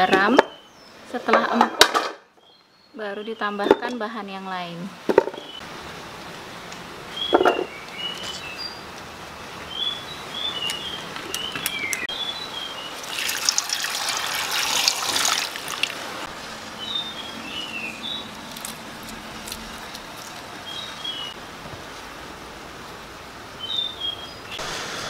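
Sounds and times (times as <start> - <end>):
small birds chirping: 7.1 - 13.1, 16.8 - 21.4
water poured into metal pot: 13.0 - 16.0.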